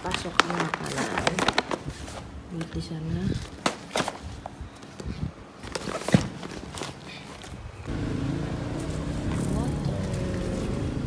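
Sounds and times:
paper pouch rustling: 0.0s - 7.6s.

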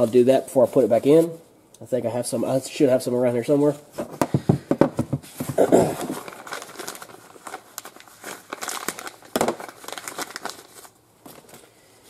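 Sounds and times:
plastic crinkling and rustling: 3.4s - 12.0s.

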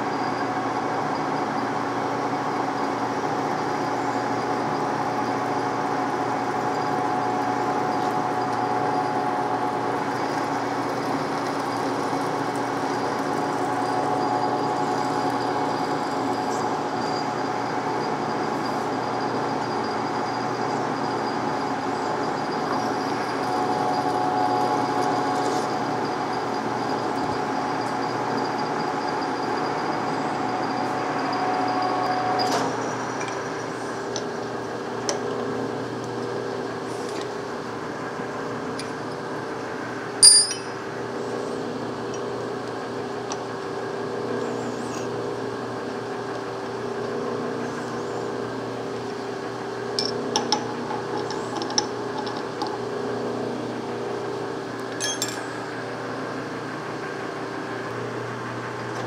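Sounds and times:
lathe drilling metal: 0.0s - 58.2s
metallic clinks: 40.2s - 40.8s, 55.0s - 55.5s.

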